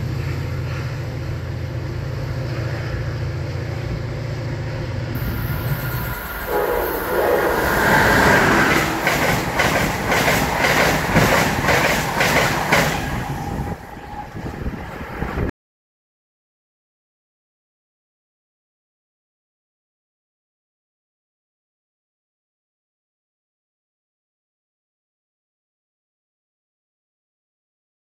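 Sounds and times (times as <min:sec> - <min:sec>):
diesel locomotive running: 0:00.0 - 0:15.5
train passing at speed: 0:00.0 - 0:15.5
train wheels clicking on rail joints: 0:05.2 - 0:15.3.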